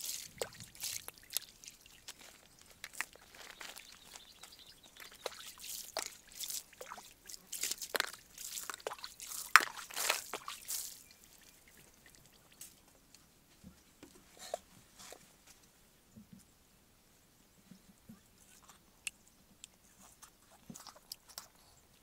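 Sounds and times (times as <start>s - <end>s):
water splashing and dripping: 0.0s - 12.8s.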